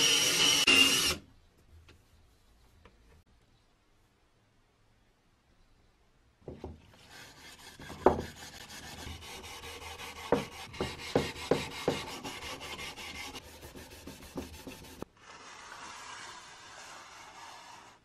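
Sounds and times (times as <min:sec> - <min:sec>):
abrasive pad scrubbing wood: 0:07.0 - 0:17.9.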